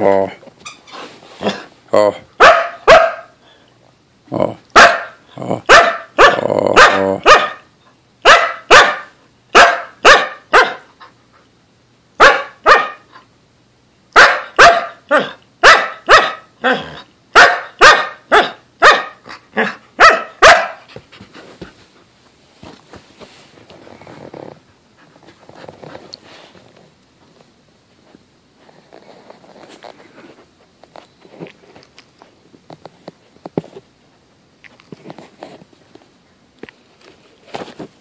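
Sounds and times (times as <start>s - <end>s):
dog barking: 2.4s - 3.4s, 4.8s - 10.9s, 12.2s - 13.1s, 14.2s - 16.8s, 17.4s - 20.9s.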